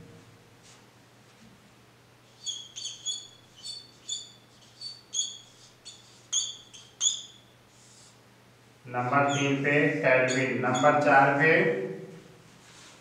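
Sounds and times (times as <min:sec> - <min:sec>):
whiteboard marker squeaking: 0:02.3 - 0:07.5, 0:09.1 - 0:11.1.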